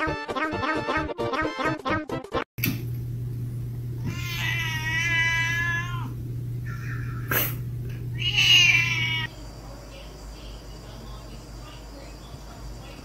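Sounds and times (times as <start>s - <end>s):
steady low hum: 2.6s - 13.0s
cat meowing: 4.0s - 7.3s, 8.1s - 9.3s.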